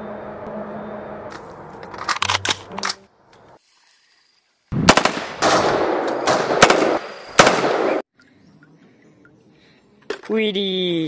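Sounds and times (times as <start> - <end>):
automatic rifle fire: 4.8 - 8.0.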